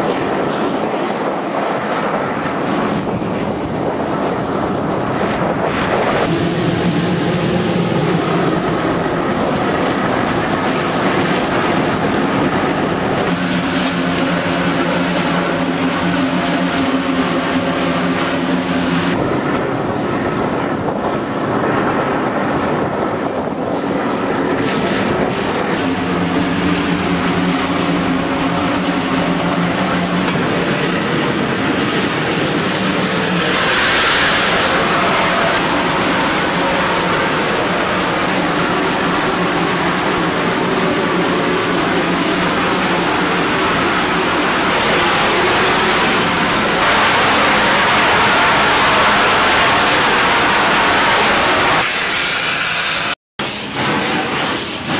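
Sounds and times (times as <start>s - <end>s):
train running noise and wind: 0.0s - 54.9s.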